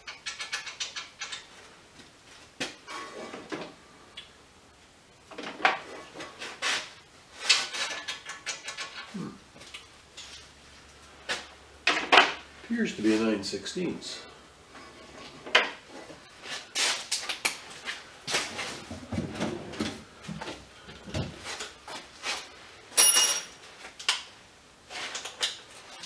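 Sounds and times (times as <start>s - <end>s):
metal tools clattering on workbench: 23.0s - 23.6s.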